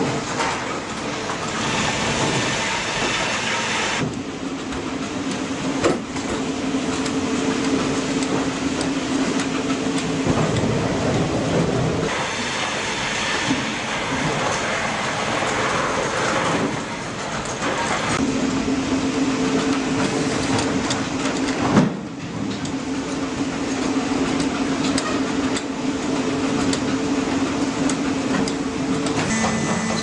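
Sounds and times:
crane machinery running and clattering: 0.0 - 30.0
steady hum: 29.1 - 30.0.

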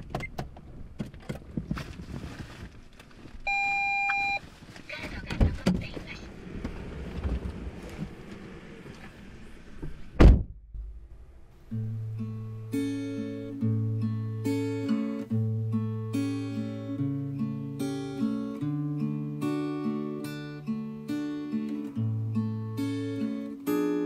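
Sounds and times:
rustling inside car: 0.2 - 10.6
loud thunk: 9.8 - 10.6
acoustic guitar music: 11.5 - 24.0.

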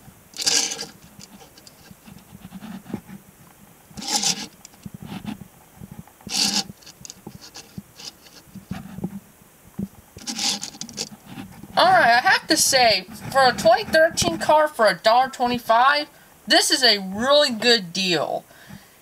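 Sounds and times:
toy car rubbing and clicking: 0.4 - 3.0, 4.0 - 5.4, 6.2 - 9.0, 10.2 - 11.5.

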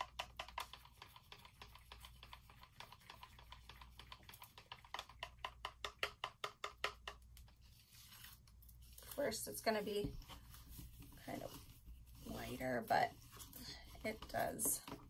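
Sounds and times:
stir stick ticking against cup: 0.0 - 7.2.

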